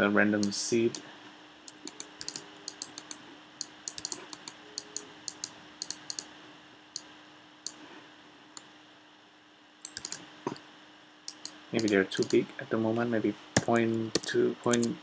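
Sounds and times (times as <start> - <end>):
faint steady hum: 0.0 - 15.0
mouse and keyboard clicking: 1.7 - 6.3, 9.8 - 10.2, 11.3 - 12.4, 13.6 - 15.0.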